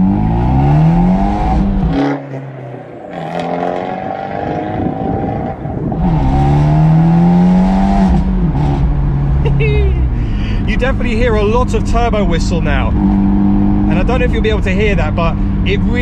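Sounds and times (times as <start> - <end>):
car engine accelerating hard: 0.0 - 16.0.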